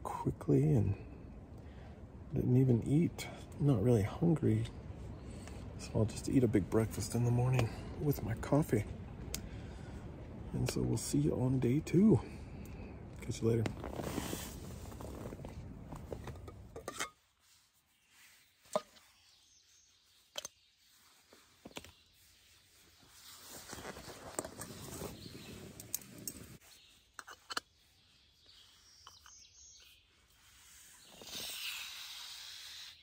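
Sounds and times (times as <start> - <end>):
soft rustling: 13.2 - 29.3.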